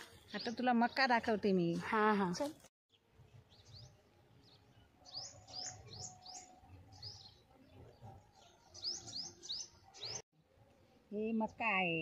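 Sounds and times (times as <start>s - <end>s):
small birds chirping: 2.9s - 10.2s.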